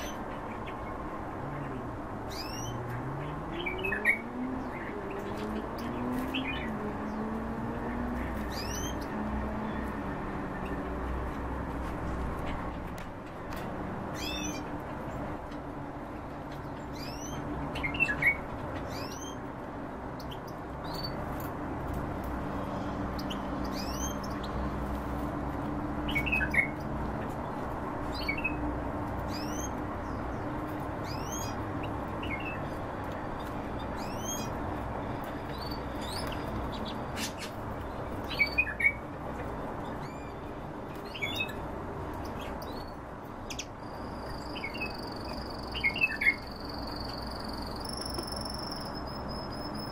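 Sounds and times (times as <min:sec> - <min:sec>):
finches chirping: 0:01.7 - 0:06.8, 0:08.0 - 0:09.1, 0:16.6 - 0:19.4, 0:23.1 - 0:24.7, 0:31.0 - 0:32.8, 0:33.4 - 0:34.6, 0:42.2 - 0:49.9.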